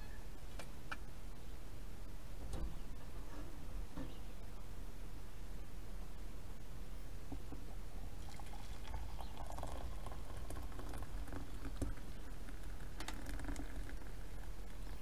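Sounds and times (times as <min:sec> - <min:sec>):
coffee pouring into a mug: 0:07.6 - 0:15.0.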